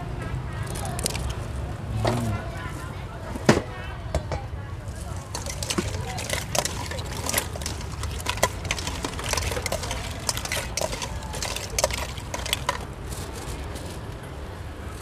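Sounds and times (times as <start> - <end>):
metal spoon scraping steel bowl: 5.1 - 12.9.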